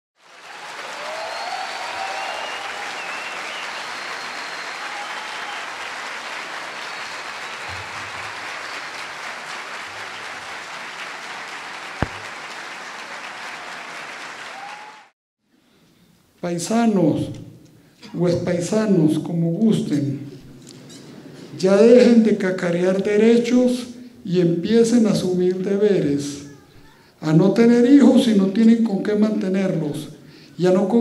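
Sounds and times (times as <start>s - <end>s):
audience applauding: 0.2s - 15.2s
cheers: 0.2s - 15.2s
sharp knock: 12.0s - 12.3s.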